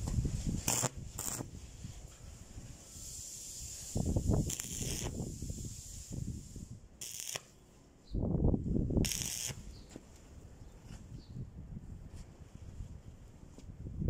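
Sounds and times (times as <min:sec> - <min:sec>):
arc welder crackling: 0:00.5 - 0:01.6, 0:02.9 - 0:06.4, 0:07.0 - 0:07.6, 0:09.0 - 0:09.7.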